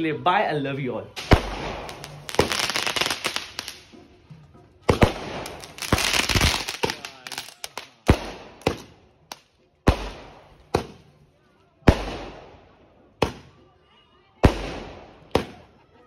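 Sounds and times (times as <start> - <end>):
fireworks bangs: 1.2 - 4.0, 4.8 - 9.0
fireworks crackling: 1.2 - 4.0, 4.9 - 11.1.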